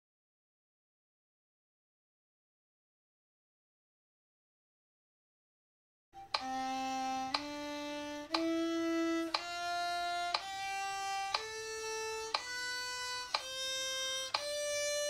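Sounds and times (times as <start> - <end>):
violin playing a scale: 6.2 - 15.0.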